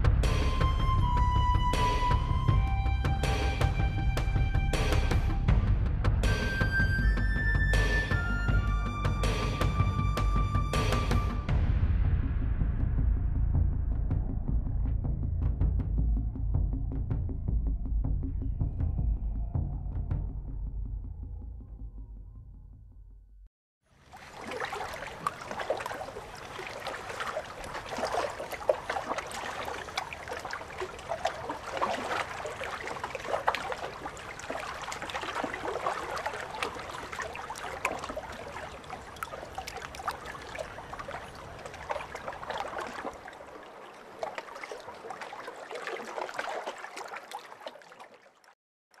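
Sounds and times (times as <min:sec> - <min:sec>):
water lapping against boats: 0:00.0 - 0:11.5, 0:23.8 - 0:49.0.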